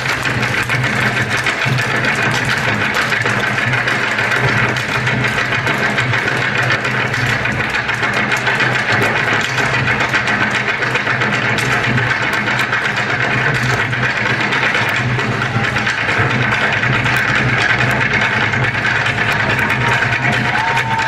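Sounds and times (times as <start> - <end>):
hard-shoe dance taps on stage: 0.0 - 21.0.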